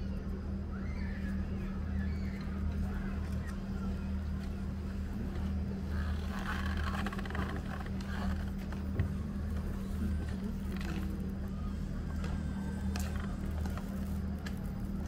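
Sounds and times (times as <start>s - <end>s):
low engine hum: 0.0s - 15.0s.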